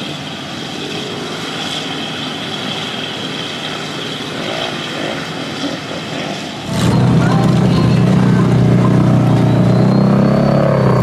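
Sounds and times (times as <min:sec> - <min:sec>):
truck engine running: 0:06.6 - 0:11.0.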